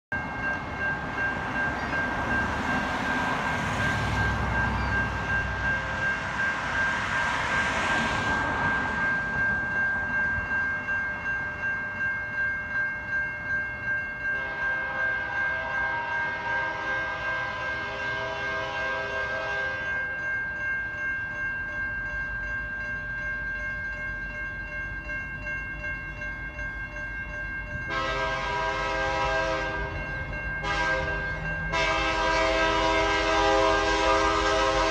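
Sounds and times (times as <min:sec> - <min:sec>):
railroad crossing bell ringing: 0:00.1 - 0:34.9
train air horn: 0:14.4 - 0:20.0, 0:27.9 - 0:30.0, 0:30.6 - 0:34.9.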